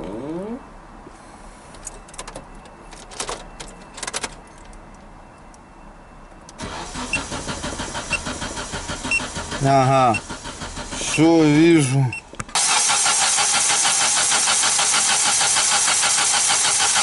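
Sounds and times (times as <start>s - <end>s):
starter cranking engine: 6.6s - 11.2s, 12.6s - 17.0s.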